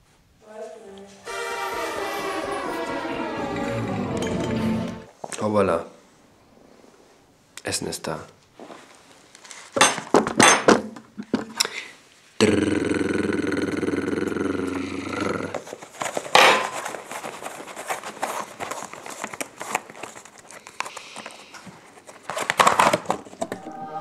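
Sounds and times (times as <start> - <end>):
steady multi-pitch tone: 1.2 - 5.1, 23.4 - 24.0
aluminium foil tray crinkling: 15.6 - 23.4.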